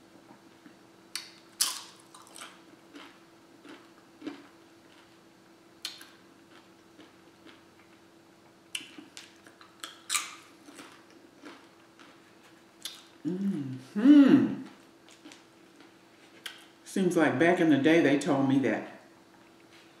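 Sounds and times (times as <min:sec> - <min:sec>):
faint steady hum: 0:00.0 - 0:20.0
crunching of chips being eaten: 0:01.2 - 0:05.2, 0:05.8 - 0:08.0, 0:08.8 - 0:13.5, 0:14.7 - 0:16.7.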